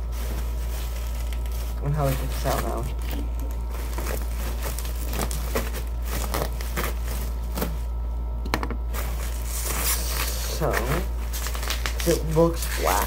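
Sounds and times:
bubble wrap crinkling: 0:00.0 - 0:08.1, 0:08.8 - 0:13.0
steady low hum: 0:00.0 - 0:13.0.

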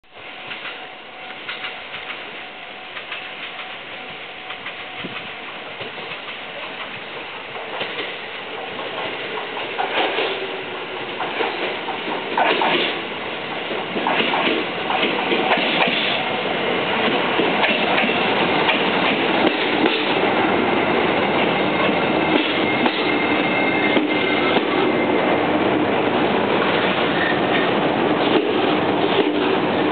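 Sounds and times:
electric train passing: 0:00.1 - 0:29.9
wheels clicking over rail joints: 0:00.4 - 0:02.3, 0:04.5 - 0:16.3, 0:17.0 - 0:20.3.

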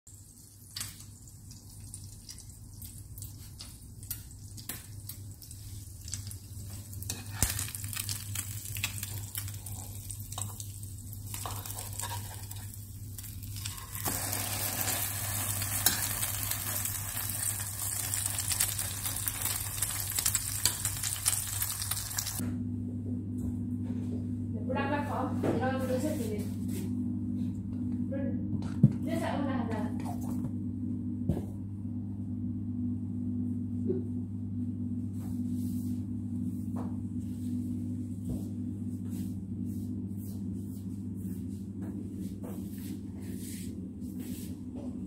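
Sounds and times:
bread sizzling in a pan: 0:00.1 - 0:22.4
steady low hum: 0:00.2 - 0:45.0.

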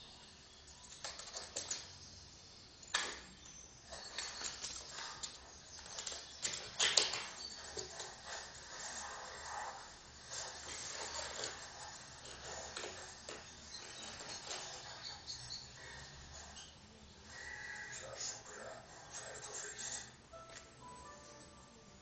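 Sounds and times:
cat claws scratching wooden floor: 0:00.9 - 0:02.0, 0:03.9 - 0:16.7.

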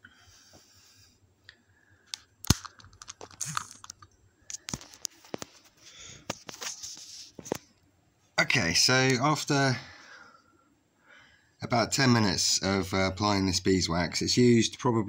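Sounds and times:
camera handling clicks and knocks: 0:02.1 - 0:05.5.

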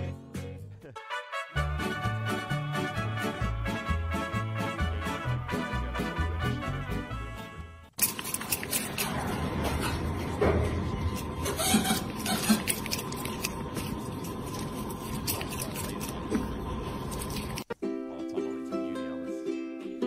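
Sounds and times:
lemur chewing fruit: 0:08.0 - 0:17.8.

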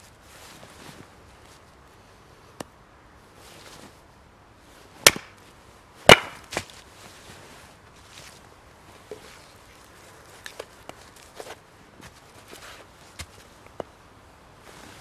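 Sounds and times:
hatchet chopping firewood: 0:05.0 - 0:05.4, 0:06.0 - 0:06.8.

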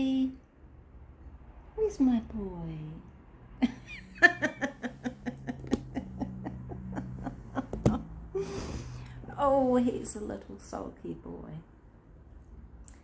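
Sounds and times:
woman laughing: 0:03.6 - 0:08.7.

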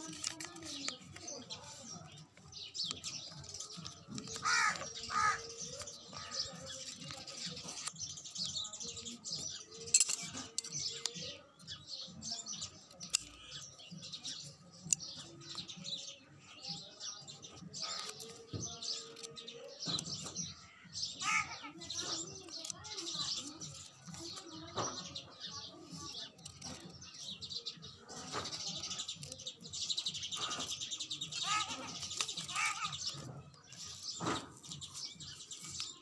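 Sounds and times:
paper rustling: 0:00.0 - 0:08.5, 0:31.3 - 0:36.0
scissors snipping paper: 0:00.0 - 0:11.5, 0:17.7 - 0:20.3, 0:21.9 - 0:27.4, 0:28.2 - 0:36.0
small birds chirping: 0:00.0 - 0:36.0.

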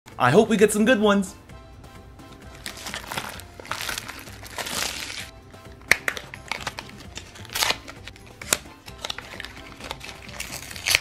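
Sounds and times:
background music: 0:00.1 - 0:11.0
crinkling plastic wrapper: 0:02.5 - 0:05.3, 0:05.9 - 0:11.0.

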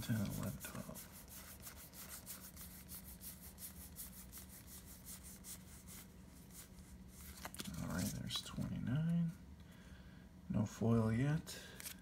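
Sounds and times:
cards sliding papery scrape: 0:00.0 - 0:08.4, 0:11.8 - 0:12.0.

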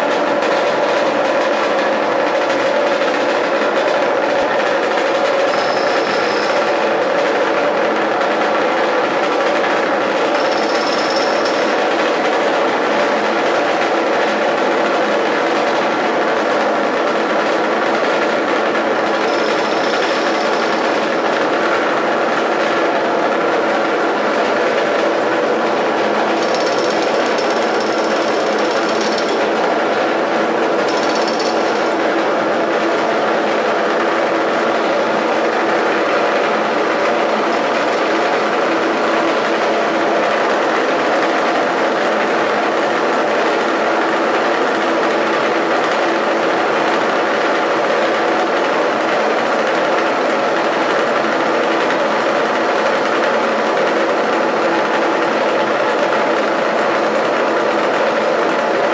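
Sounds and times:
model helicopter engines droning: 0:00.0 - 0:41.0.

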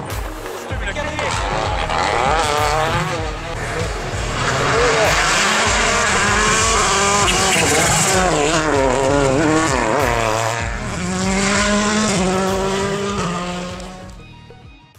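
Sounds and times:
rally car engine revving: 0:00.0 - 0:14.2.

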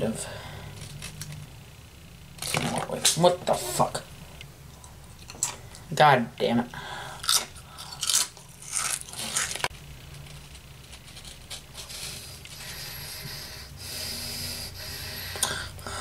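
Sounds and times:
crisp crunching when bitten: 0:07.2 - 0:09.7.

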